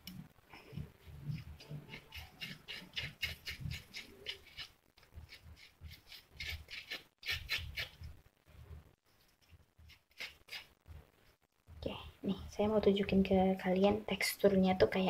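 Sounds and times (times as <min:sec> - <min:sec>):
metal spoon scraping gel: 0:00.7 - 0:08.2, 0:09.2 - 0:10.7.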